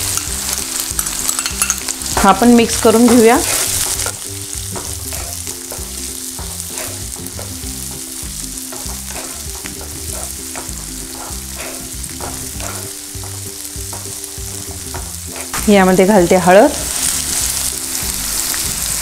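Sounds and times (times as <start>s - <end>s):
food sizzling in hot oil: 0.0s - 19.0s
wooden spatula scraping a pan: 8.7s - 15.6s.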